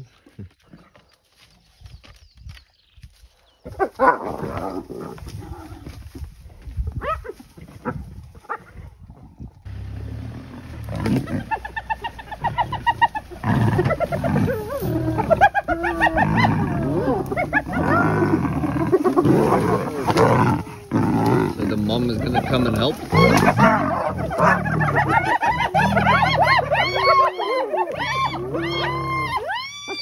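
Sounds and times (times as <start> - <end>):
hyenas calling: 9.7 - 30.0
lion cub calling: 10.8 - 30.0
high yelping notes: 11.1 - 18.4.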